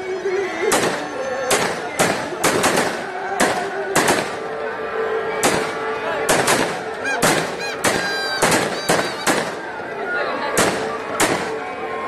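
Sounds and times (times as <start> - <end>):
firecracker bangs: 0.7 - 4.4, 5.4 - 9.6, 10.6 - 11.6
fireworks crackle: 5.4 - 9.6.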